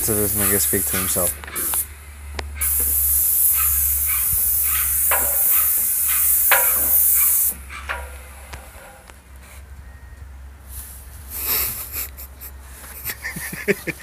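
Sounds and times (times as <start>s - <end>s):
paint spray gun hissing: 0.0s - 1.9s, 2.6s - 8.4s.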